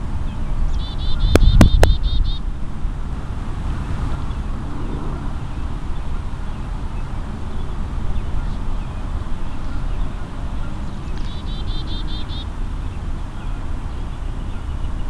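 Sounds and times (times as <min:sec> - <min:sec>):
wind buffeting microphone: 0:00.0 - 0:15.0
bird calling short notes: 0:00.8 - 0:02.4, 0:09.6 - 0:12.8.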